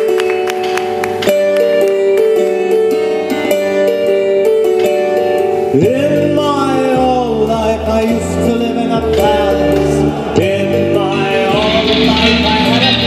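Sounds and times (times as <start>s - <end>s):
person singing: 5.6s - 13.0s.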